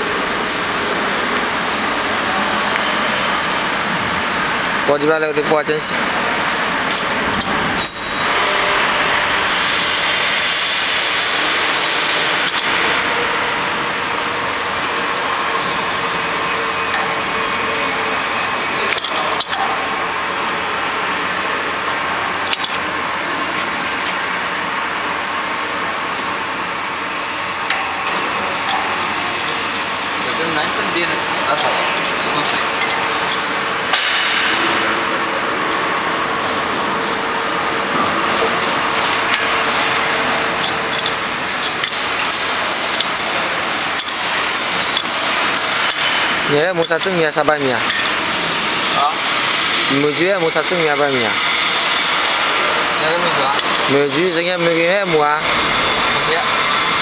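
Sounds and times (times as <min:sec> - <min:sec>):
machinery hum: 0:00.0 - 0:57.0
workshop noise: 0:00.0 - 0:57.0
wrench clinking on metal: 0:06.6 - 0:08.5.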